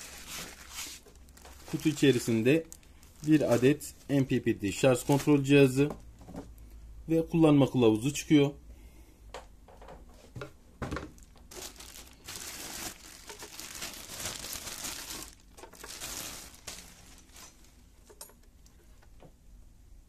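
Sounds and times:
plastic bag crinkling: 0:00.0 - 0:06.0, 0:11.0 - 0:18.2.

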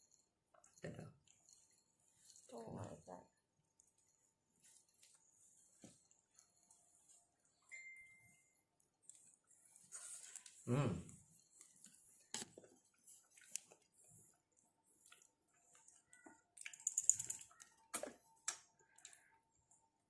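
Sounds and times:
lip smacks and chewing: 0:11.6 - 0:19.3.

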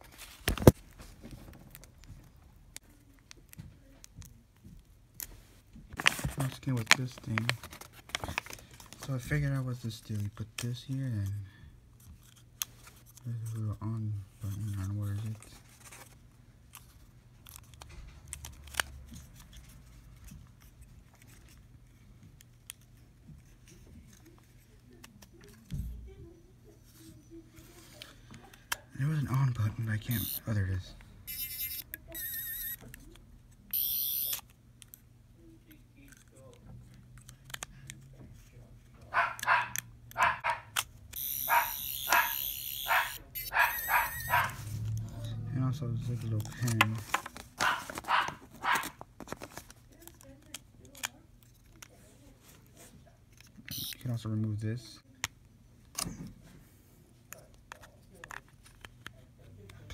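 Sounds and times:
toy plastic clicks and handling: 0:16.7 - 0:25.6, 0:28.0 - 0:30.5, 0:31.3 - 0:35.1, 0:36.0 - 0:38.2, 0:39.4 - 0:44.5, 0:46.0 - 0:52.0, 0:53.3 - 0:54.6
toy electronic buzz: 0:30.1 - 0:30.4, 0:31.3 - 0:32.8, 0:33.7 - 0:34.4, 0:41.1 - 0:44.5, 0:53.7 - 0:54.0.

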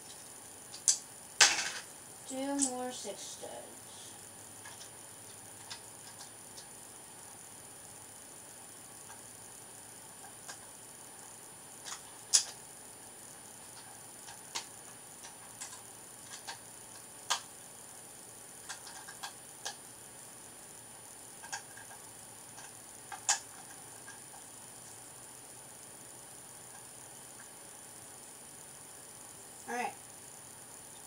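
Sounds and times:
plastic bricks clicking: 0:18.6 - 0:19.8.

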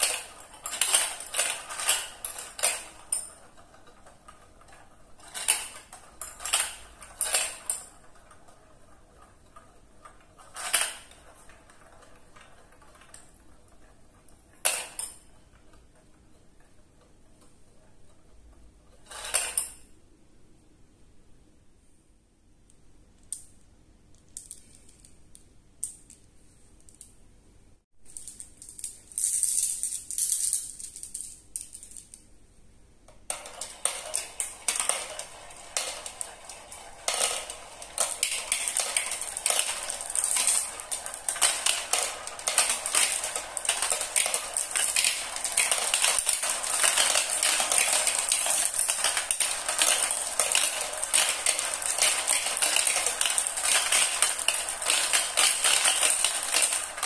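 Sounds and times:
marbles clattering in a marble run: 0:00.0 - 0:19.8, 0:28.1 - 0:32.2, 0:33.1 - 0:57.0.

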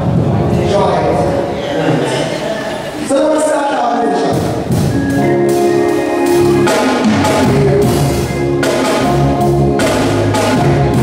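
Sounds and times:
keyboard chords: 0:04.1 - 0:11.0
bass line: 0:04.4 - 0:11.0
drum hits: 0:06.4 - 0:11.0.

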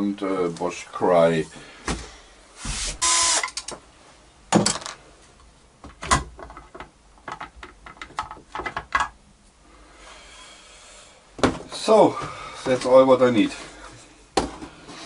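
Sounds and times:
plastic pieces clicking and tapping: 0:06.4 - 0:09.2.

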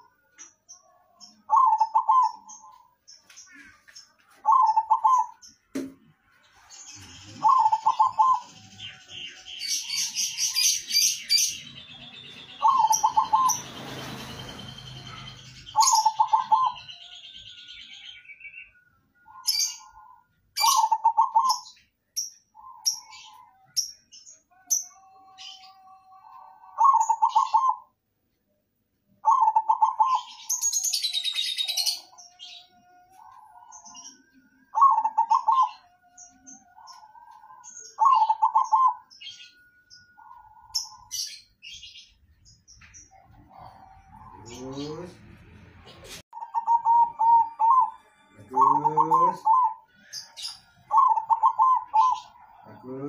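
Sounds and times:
small birds chirping: 0:00.0 - 0:53.0
dove cooing: 0:01.4 - 0:02.9, 0:04.4 - 0:05.4, 0:07.0 - 0:17.0, 0:19.2 - 0:21.7, 0:25.0 - 0:27.9, 0:29.2 - 0:30.6, 0:34.7 - 0:36.0, 0:36.6 - 0:39.4, 0:46.4 - 0:49.8, 0:50.9 - 0:53.0.

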